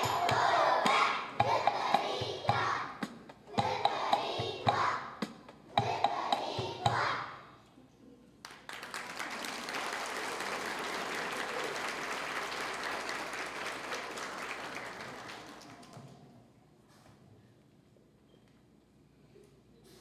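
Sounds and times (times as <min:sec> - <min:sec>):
children singing: 0:00.0 - 0:07.5
audience applauding: 0:08.4 - 0:16.4.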